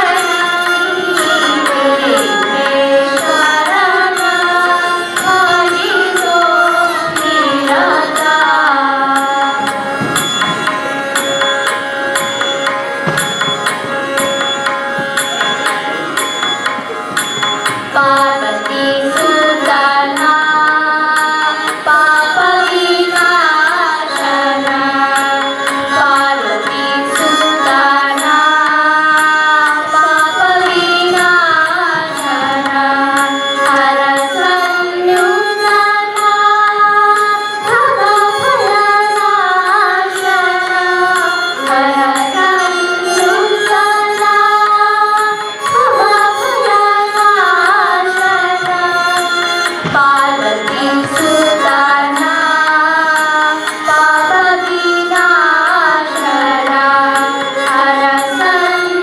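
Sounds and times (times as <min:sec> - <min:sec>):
girls singing in unison: 0:00.0 - 0:10.2, 0:17.9 - 0:59.0
light percussion beat: 0:09.2 - 0:18.5.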